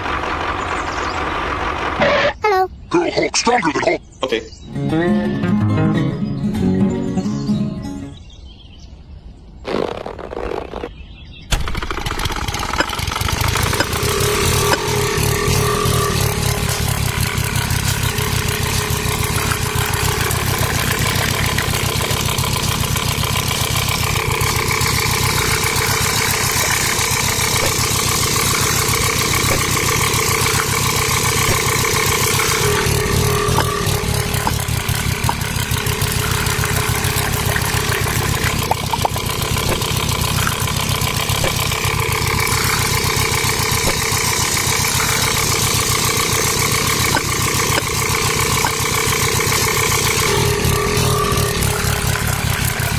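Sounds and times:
small motor humming and whining: 11.6s - 52.9s.

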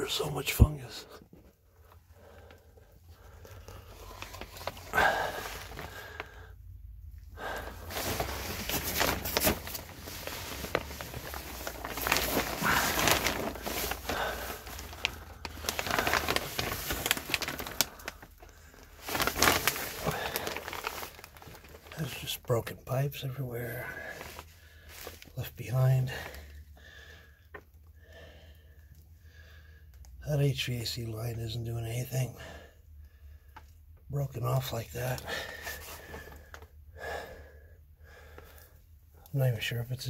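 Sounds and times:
plastic sheeting crinkling: 1.8s - 6.5s, 7.3s - 26.6s, 34.3s - 36.7s.

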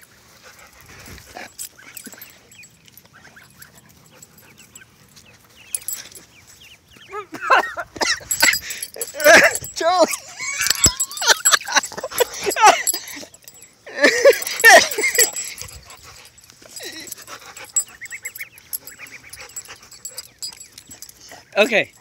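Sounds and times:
dog whining and yipping: 8.0s - 21.5s.

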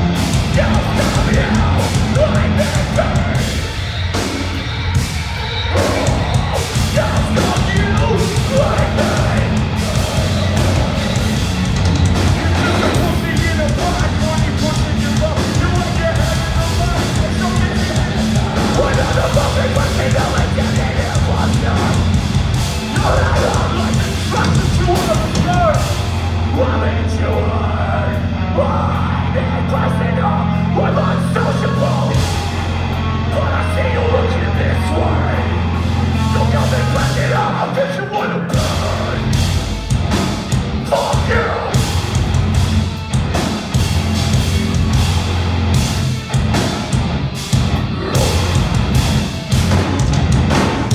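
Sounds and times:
vocalist singing and screaming: 0.0s - 43.2s, 44.3s - 50.9s
metal band playing: 0.0s - 50.9s
low held bass chord: 25.9s - 37.5s.

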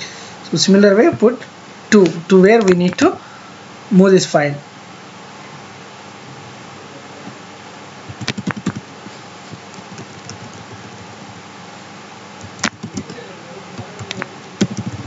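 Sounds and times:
faint room hum: 0.0s - 15.0s
computer keyboard typing: 8.1s - 8.9s, 9.5s - 11.4s, 12.4s - 13.2s, 13.8s - 15.0s.

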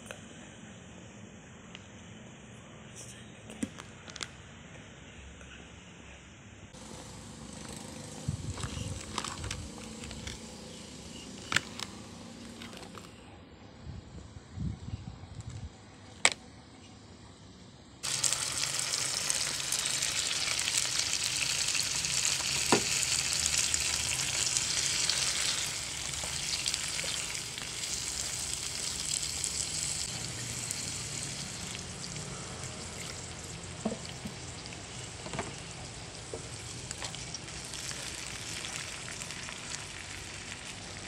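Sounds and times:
food sizzling in a pan: 18.0s - 41.0s.

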